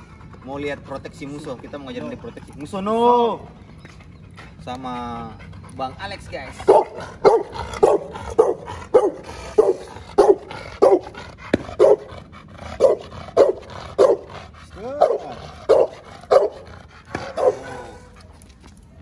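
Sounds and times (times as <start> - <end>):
dog barking: 6.6 - 12.1, 12.8 - 14.3, 15.0 - 18.2.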